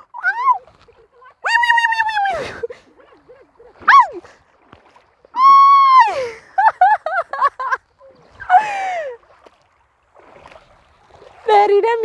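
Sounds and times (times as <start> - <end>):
woman squealing and yelping: 0.0 - 0.7, 1.3 - 4.3, 5.4 - 6.2.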